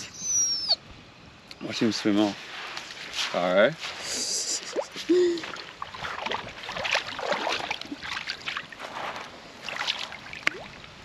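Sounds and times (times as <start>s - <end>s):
river water sloshing and splashing: 4.6s - 11.0s.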